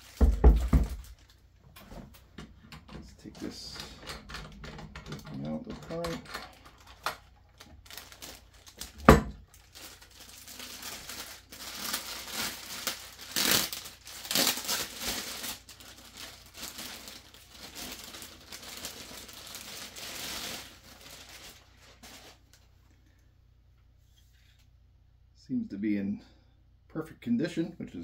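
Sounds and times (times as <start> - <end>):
plastic bag crinkling: 0.0 - 1.5, 3.2 - 23.0.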